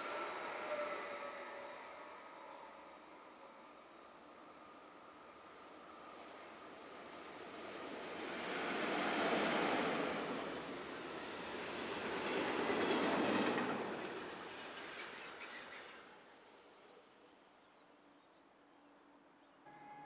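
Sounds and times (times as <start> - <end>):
sharp clacks of train wheels: 11.5 - 16.9
freight train wagons rolling: 11.8 - 17.2.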